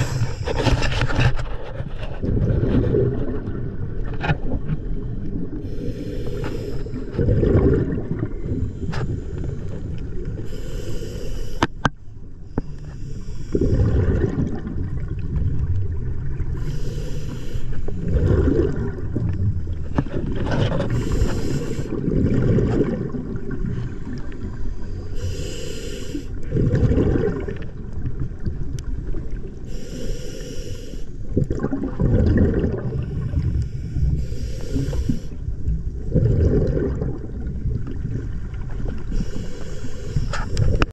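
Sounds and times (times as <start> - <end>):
regulator hiss on inhale: 0.0 - 0.6, 5.6 - 7.2, 8.6 - 13.7, 16.6 - 18.1, 20.8 - 22.0, 24.6 - 26.4, 29.6 - 31.3, 33.0 - 35.6, 39.0 - 40.9
rumble of exhaled bubbles: 0.0 - 10.5, 13.0 - 25.5, 26.2 - 29.8, 31.2 - 40.9.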